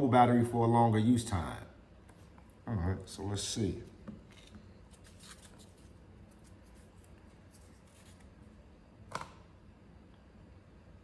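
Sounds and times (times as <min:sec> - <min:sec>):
stickers rustling and peeling: 0:04.2 - 0:08.5.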